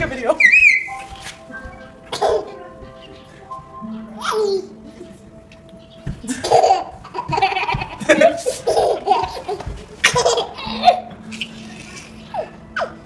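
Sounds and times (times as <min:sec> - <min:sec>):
hearty laughter: 0:06.2 - 0:12.2.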